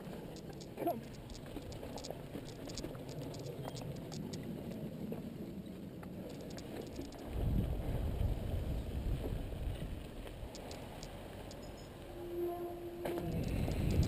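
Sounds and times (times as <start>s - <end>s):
bike clicks and rattles: 0.3s - 4.8s, 6.3s - 7.2s, 10.5s - 11.9s, 13.1s - 14.0s.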